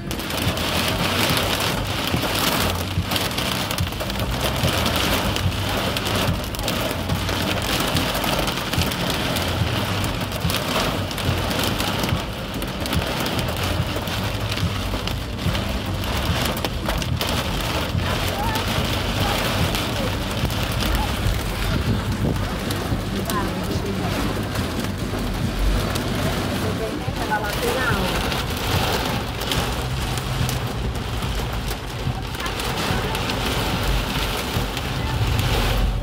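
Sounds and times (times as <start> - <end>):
heavy rain on car roof: 0.0 - 36.0.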